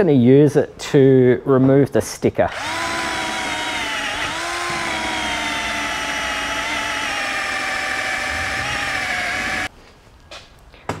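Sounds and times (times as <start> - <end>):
cordless drill motor whine: 2.5 - 9.7.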